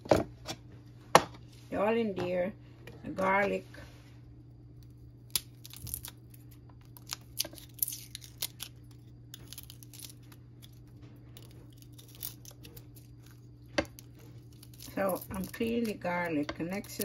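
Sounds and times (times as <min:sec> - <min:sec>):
garlic skin crinkling: 0:04.7 - 0:17.0.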